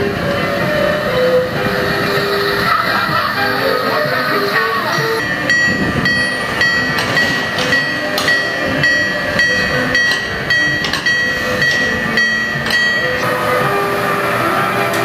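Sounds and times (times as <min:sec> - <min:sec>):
railroad crossing bell ringing: 0:00.0 - 0:15.0.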